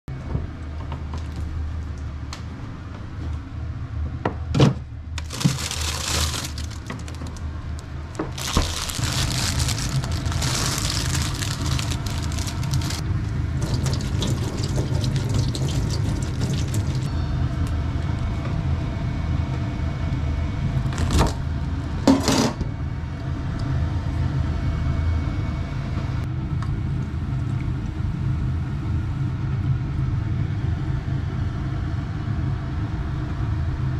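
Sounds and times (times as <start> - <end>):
steady low hum: 0.1 - 33.9
water splashing over vegetables: 8.4 - 13.0, 13.6 - 17.1.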